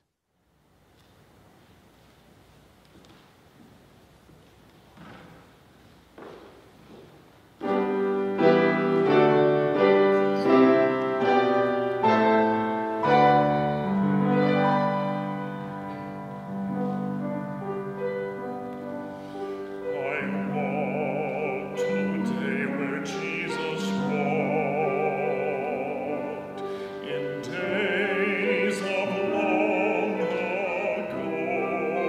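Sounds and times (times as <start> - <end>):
piano chords: 7.5 - 32.0.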